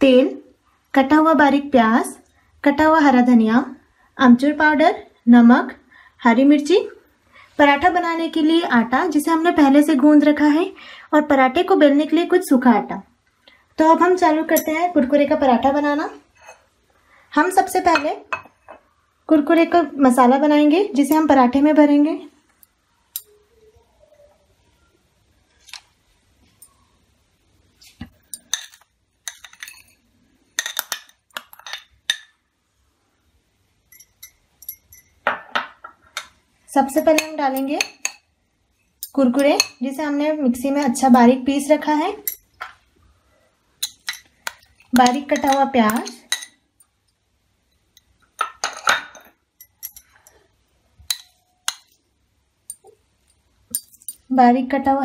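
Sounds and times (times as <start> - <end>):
metal spoon clinking on glass bowls: 14.5 - 14.9, 28.2 - 32.4, 33.9 - 36.3, 36.9 - 38.3, 39.0 - 39.9, 42.2 - 42.8, 43.8 - 52.0, 52.7 - 54.3.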